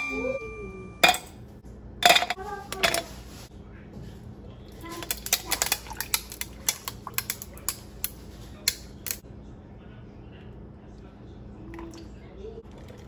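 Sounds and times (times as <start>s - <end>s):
kitchen objects clicking and clinking: 0.0s - 3.2s, 4.8s - 9.2s.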